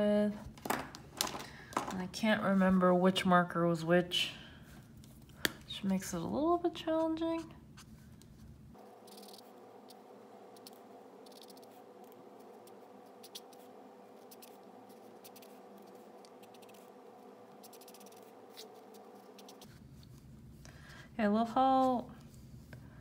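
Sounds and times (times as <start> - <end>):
faint steady hum: 0.0 - 23.0
marker scratching on paper: 9.0 - 10.0, 10.6 - 16.9, 17.6 - 19.8.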